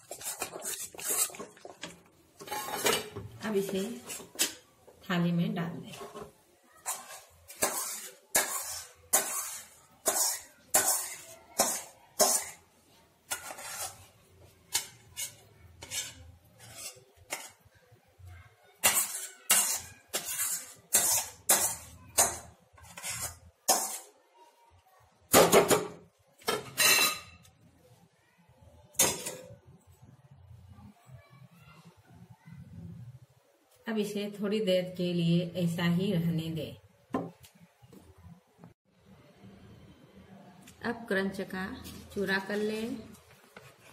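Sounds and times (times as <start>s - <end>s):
steel spatula scraping pan: 0.0s - 4.6s, 5.8s - 12.6s, 13.3s - 17.6s, 18.8s - 24.1s.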